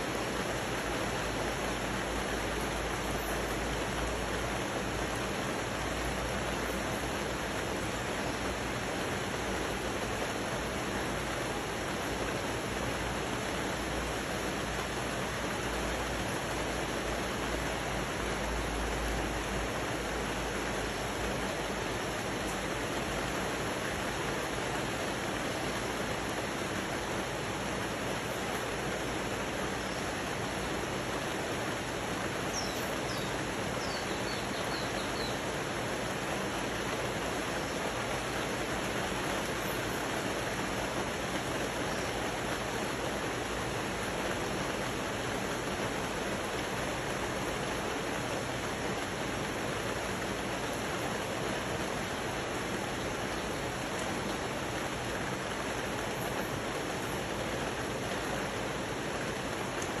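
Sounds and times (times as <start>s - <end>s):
rain falling on foliage: 0.0s - 60.0s
bird chirping: 32.5s - 35.5s.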